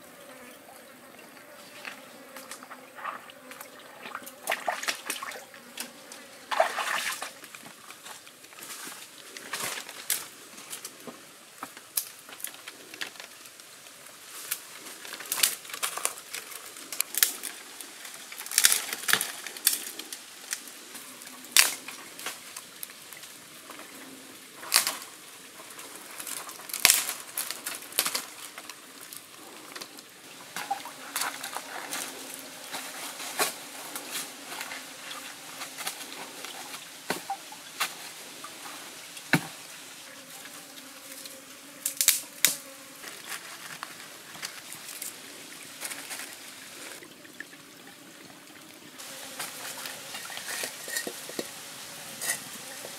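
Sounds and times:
brush rustling: 1.7s - 47.0s, 49.0s - 52.9s
twigs snapping and cracking: 11.6s - 13.5s, 14.4s - 20.6s, 21.6s - 23.0s, 24.6s - 25.1s, 26.1s - 30.0s, 41.8s - 42.6s.

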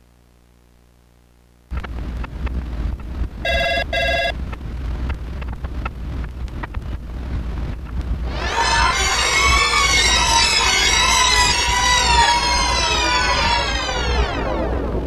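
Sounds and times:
faint hum: 0.0s - 15.0s
low rumble with crackles: 0.0s - 15.0s
telephone ringing: 3.5s - 4.4s.

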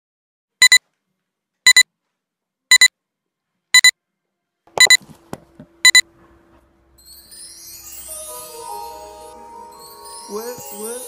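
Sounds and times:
electronic countdown double beeps: 2.7s - 2.9s, 4.8s - 5.0s.

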